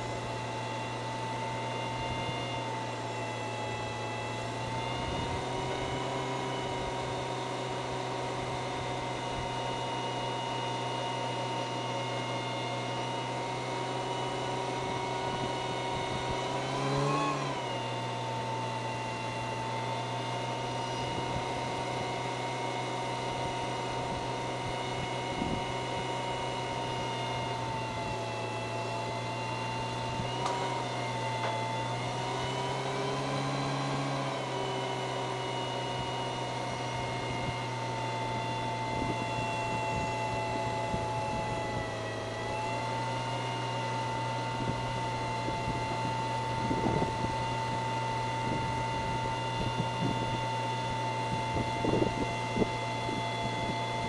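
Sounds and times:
car engine at high revs: 0:00.0 - 0:54.0.

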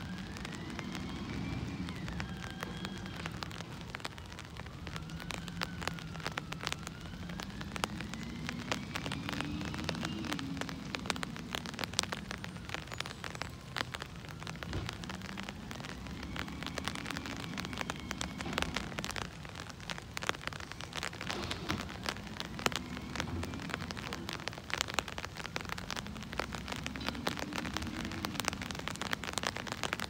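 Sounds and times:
garbage truck diesel engine: 0:00.0 - 0:04.0
rain pattering: 0:00.0 - 0:30.0.

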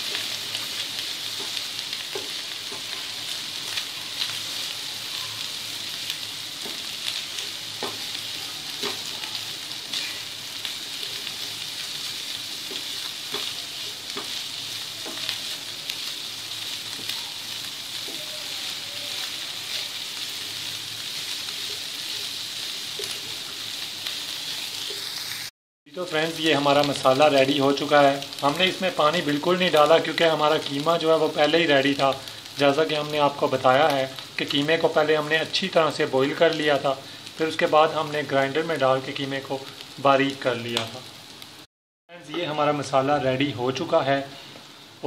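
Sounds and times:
meat sizzling in oil: 0:00.0 - 0:45.0
wooden spoon knocking and scraping pan: 0:01.3 - 0:02.9, 0:07.8 - 0:08.2, 0:08.8 - 0:09.1, 0:12.6 - 0:14.4, 0:15.0 - 0:15.4.

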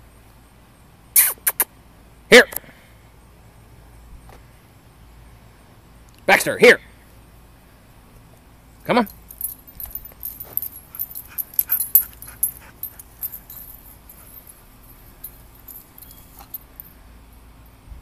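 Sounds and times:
metallic jingling: 0:08.7 - 0:17.8.

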